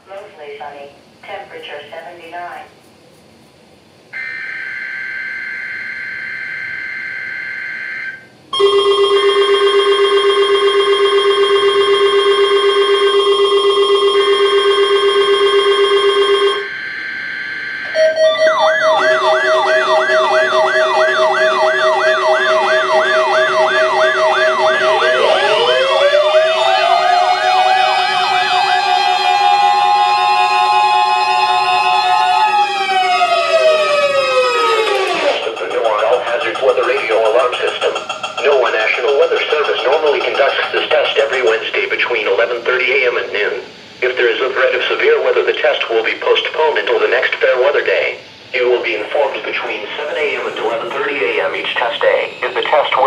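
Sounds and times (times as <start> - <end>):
warbling siren-like tones: 4.2 - 8.3, 9.4 - 42.4, 48.6 - 53.0
multi-tone alarm beep: 4.2 - 28.8, 34.4 - 41.6, 50.5 - 53.0
two-tone data burst: 11.4 - 26.3, 34.6 - 42.1, 49.1 - 53.0.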